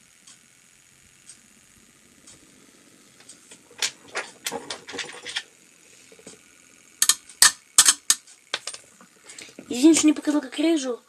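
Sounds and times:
hard objects clicking and knocking: 3.5s - 5.5s, 7.0s - 8.9s.

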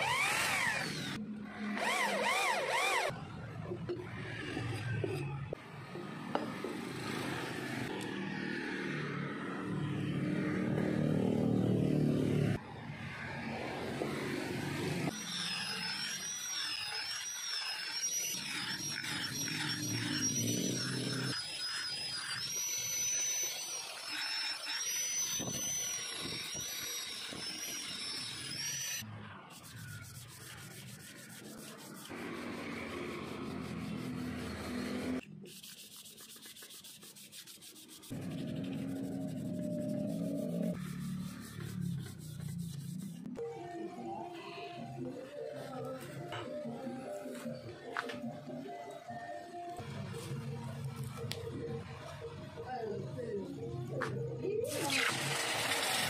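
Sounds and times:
angle grinder whining on steel: 0.0s - 5.6s, 14.8s - 29.1s
hand sanding metal: 29.5s - 43.3s.

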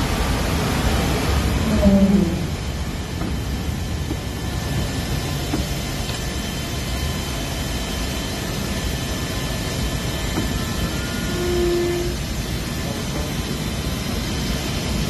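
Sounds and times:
aircraft machinery roar: 0.0s - 15.0s
faint high whine: 4.8s - 14.5s.

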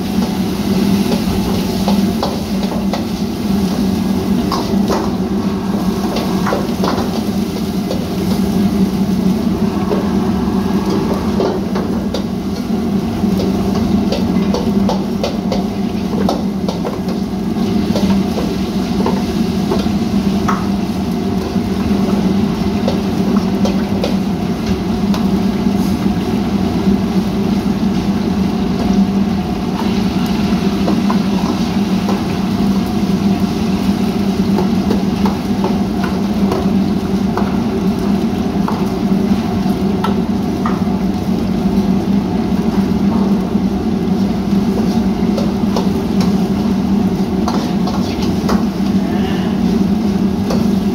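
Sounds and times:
gas burners rushing: 0.0s - 16.0s
food sizzling: 0.0s - 50.9s.

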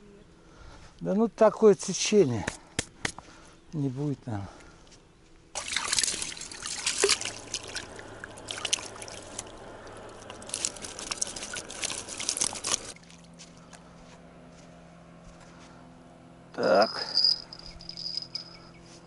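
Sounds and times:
water trickling and splashing: 5.5s - 13.4s.

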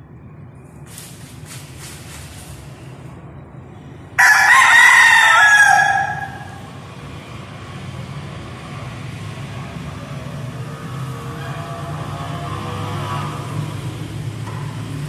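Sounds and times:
rooster crowing: 4.2s - 6.9s.

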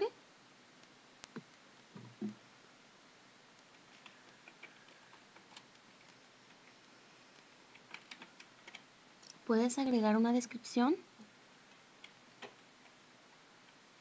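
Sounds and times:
computer keyboard keystrokes: 7.7s - 8.9s.

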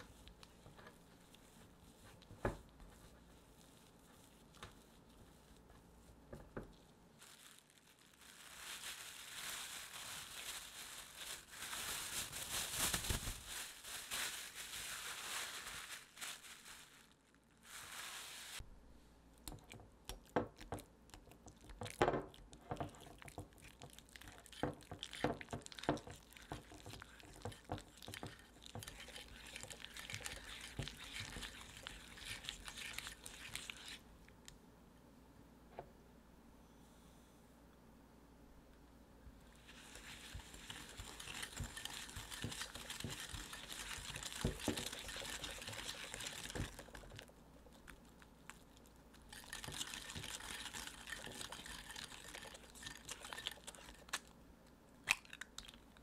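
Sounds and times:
plastic crinkling: 6.6s - 18.6s, 39.6s - 54.3s
whisk scraping glass bowl: 24.3s - 34.0s, 39.8s - 47.0s, 49.3s - 54.1s.

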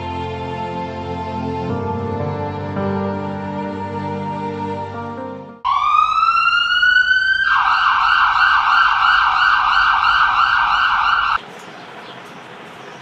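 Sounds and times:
sad background music: 0.0s - 5.6s
electronic emergency siren: 5.6s - 11.4s.

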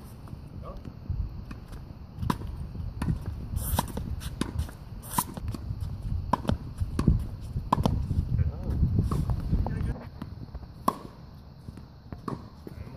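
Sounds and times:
racket striking tennis ball: 6.3s - 8.0s, 10.8s - 11.2s, 12.1s - 12.6s
ball bouncing on court: 10.2s - 12.5s.

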